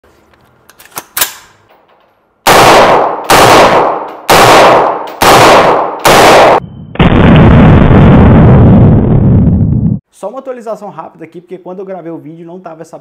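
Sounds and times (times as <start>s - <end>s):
rifle shots echoing indoors: 2.4s - 7.2s.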